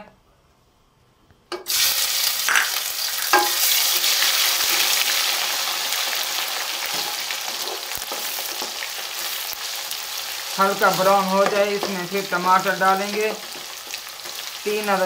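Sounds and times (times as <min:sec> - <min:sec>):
paste sizzling in hot oil: 0:01.7 - 0:15.0.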